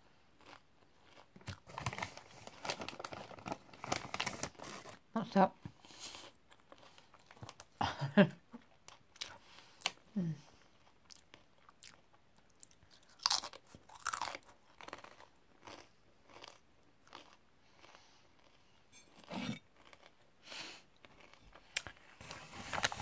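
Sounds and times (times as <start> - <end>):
person crunching chips: 0.4 - 5.0, 12.6 - 18.6, 21.0 - 22.0.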